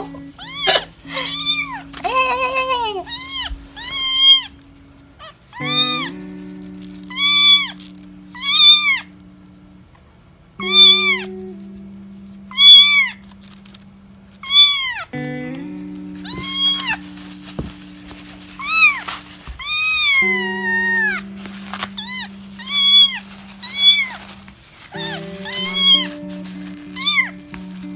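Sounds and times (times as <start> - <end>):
kitten meowing: 0.0 - 4.6, 5.2 - 6.2, 7.0 - 9.1, 10.6 - 11.6, 12.5 - 13.3, 14.4 - 15.1, 16.2 - 17.1, 17.7 - 24.3, 24.9 - 27.9
low held background music: 0.0 - 27.9.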